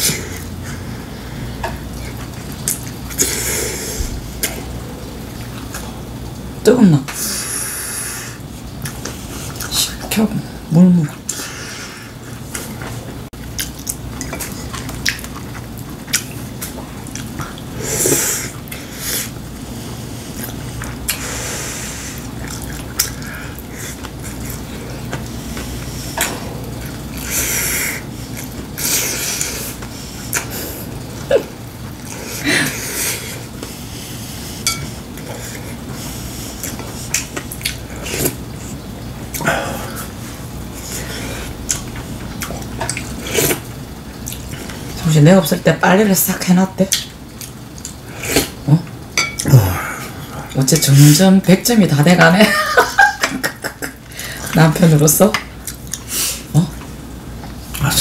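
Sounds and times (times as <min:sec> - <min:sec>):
person chewing: 0:01.5 - 0:06.0, 0:12.4 - 0:32.4, 0:33.1 - 0:44.9, 0:46.9 - 0:50.6, 0:55.6 - 0:56.9
person slurping: 0:02.7 - 0:05.9, 0:49.4 - 0:50.3.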